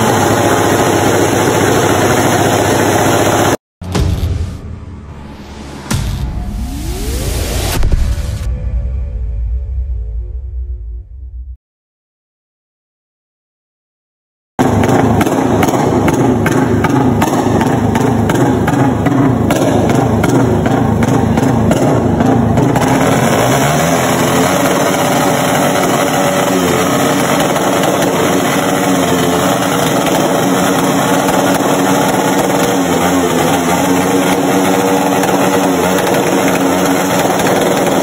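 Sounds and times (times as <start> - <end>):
motorcycle revving loudly: 0.0 - 3.6, 14.6 - 38.0.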